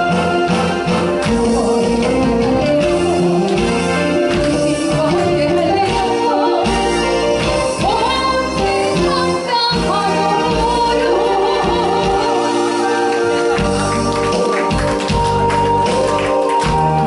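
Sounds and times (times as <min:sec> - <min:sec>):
instrumental accompaniment: 0:00.0 - 0:17.0
woman singing into microphone: 0:04.3 - 0:07.1, 0:07.7 - 0:13.4.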